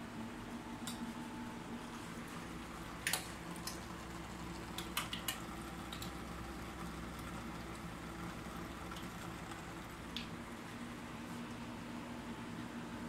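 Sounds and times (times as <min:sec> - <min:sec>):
low equipment hum: 0:00.0 - 0:13.0
aquarium water bubbling: 0:02.0 - 0:11.8.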